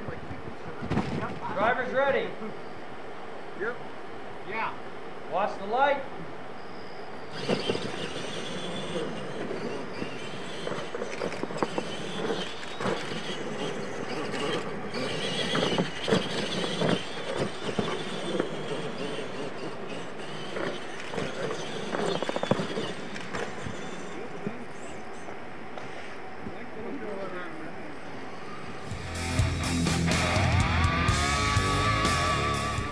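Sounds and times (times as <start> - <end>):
tyres scrabbling over dirt: 0.7 - 1.8, 7.3 - 25.4
electric motors whining: 6.4 - 32.9.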